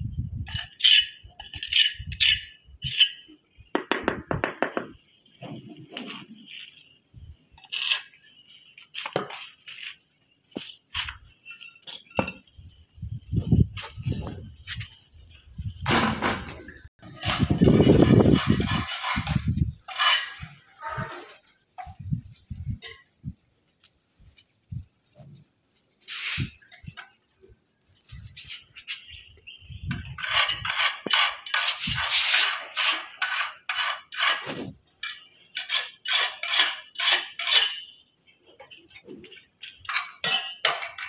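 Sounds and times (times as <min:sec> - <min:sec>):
hard material scraping: 0:15.6 - 0:22.9, 0:26.0 - 0:27.0, 0:30.0 - 0:34.9.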